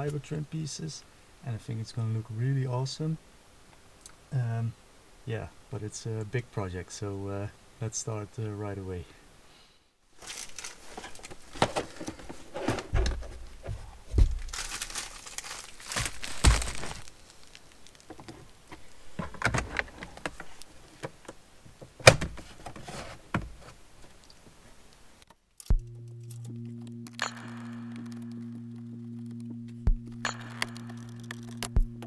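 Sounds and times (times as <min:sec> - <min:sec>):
dull thumps: 0:11.6 - 0:15.0, 0:15.8 - 0:17.1, 0:29.8 - 0:30.8, 0:31.5 - 0:32.0
background music: 0:25.7 - 0:32.0.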